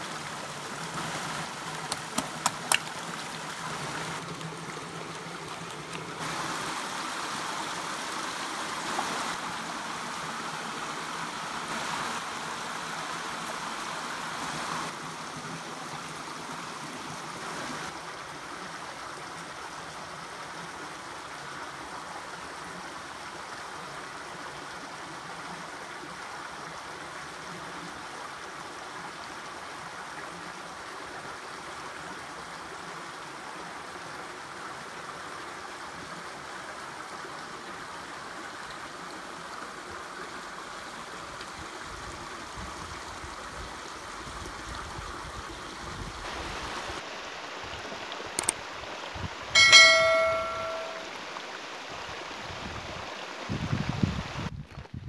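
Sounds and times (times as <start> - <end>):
river water flowing: 0.0 - 54.5.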